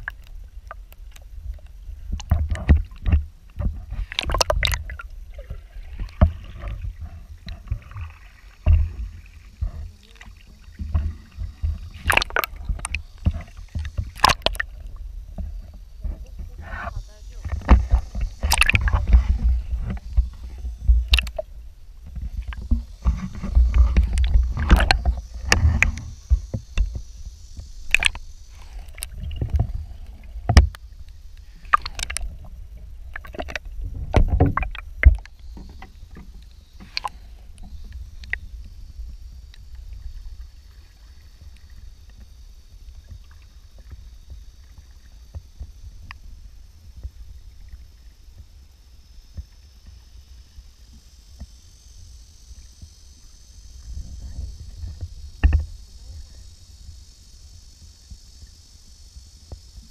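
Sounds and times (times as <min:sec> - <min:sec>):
water sloshing and splashing: 0:00.0 - 0:38.8
muffled underwater rumble: 0:00.0 - 0:59.9.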